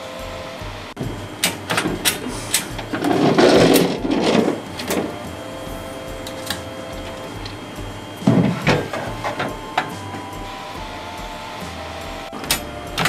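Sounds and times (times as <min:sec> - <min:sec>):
scraping rumble: 0:01.9 - 0:09.7.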